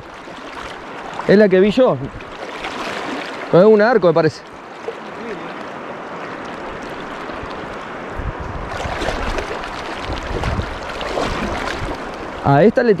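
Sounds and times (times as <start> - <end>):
rushing river water: 0.0 - 13.0
wind buffeting microphone: 1.2 - 2.4, 6.0 - 13.0.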